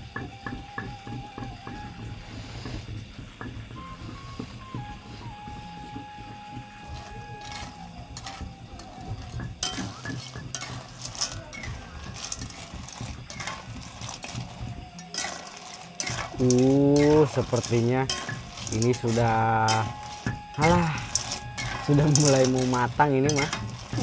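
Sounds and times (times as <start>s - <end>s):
utensil scraping metal pot: 6.5s - 24.0s.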